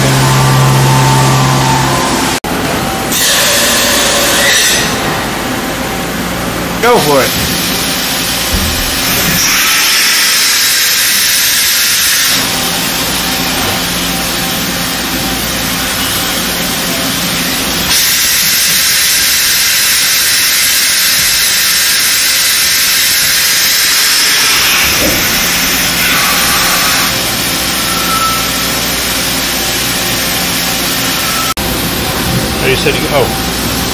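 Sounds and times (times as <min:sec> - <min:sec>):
low mechanical hum: 0:00.0 - 0:10.0
machine loud steady hiss: 0:06.7 - 0:33.9.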